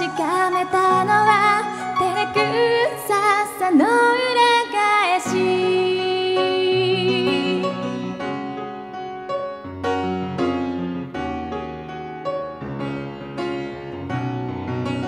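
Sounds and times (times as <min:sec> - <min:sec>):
grand piano playing: 0:00.0 - 0:15.0.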